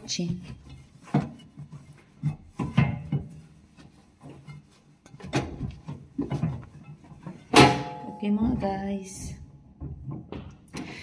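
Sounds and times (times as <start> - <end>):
wiping strokes on metal: 0.6 - 7.5.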